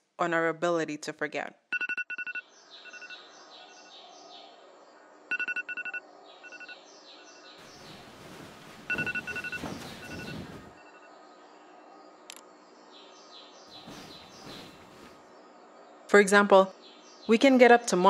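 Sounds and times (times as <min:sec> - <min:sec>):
echoing electronic beeps: 0:01.7 - 0:03.9, 0:05.3 - 0:06.8, 0:08.9 - 0:11.1
hiss of noise: 0:07.6 - 0:10.8, 0:13.8 - 0:15.2.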